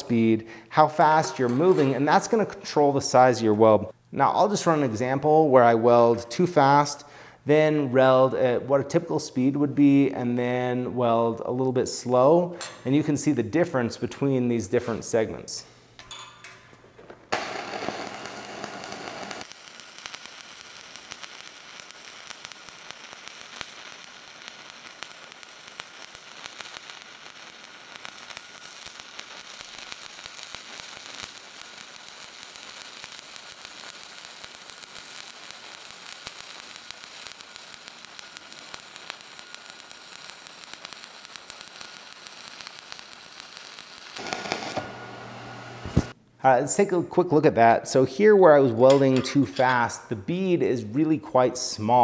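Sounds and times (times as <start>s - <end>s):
welding arc hissing and popping: 17.3s - 46.2s.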